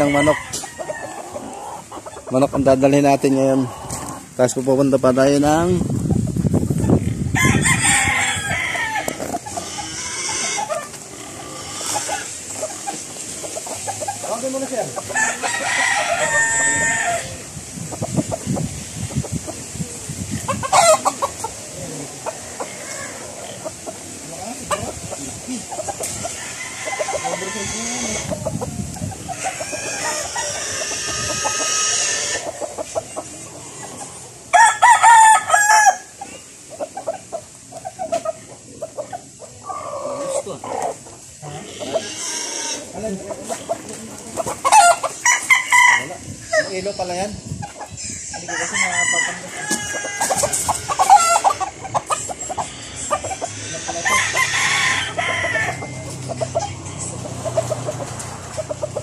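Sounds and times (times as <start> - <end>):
rooster crowing: 0.0 - 1.8, 7.3 - 10.9, 15.1 - 17.5, 26.2 - 28.4, 29.4 - 32.4, 34.5 - 36.2, 44.6 - 46.7, 48.4 - 51.8, 52.8 - 57.1
chickens clucking: 0.0 - 59.0
roosters crowing: 0.0 - 59.0.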